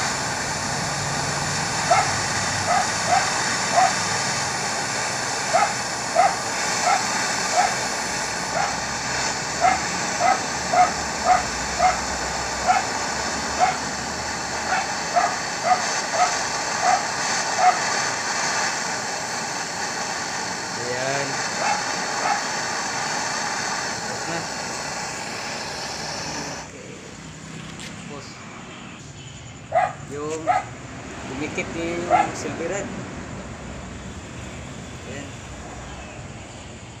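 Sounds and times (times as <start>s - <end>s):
torch flame hissing: 0.0s - 37.0s
animal yipping: 1.9s - 4.0s, 5.5s - 7.8s, 8.5s - 8.8s, 9.6s - 12.0s, 12.6s - 12.9s, 13.6s - 13.9s, 14.6s - 17.8s, 21.6s - 22.5s, 29.7s - 30.7s, 32.1s - 32.4s.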